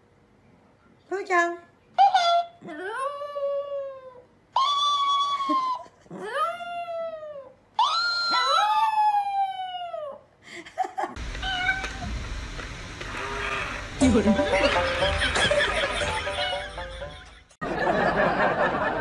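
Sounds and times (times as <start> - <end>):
small dog howling: 2.1 - 10.2
steady low hum with faint tones: 8.4 - 19.0.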